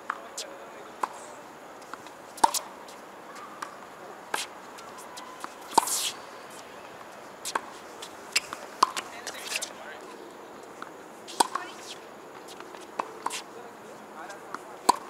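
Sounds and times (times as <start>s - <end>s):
racket hitting tennis ball: 1.9s - 6.6s, 7.4s - 9.7s, 11.3s - 13.5s, 14.4s - 15.0s.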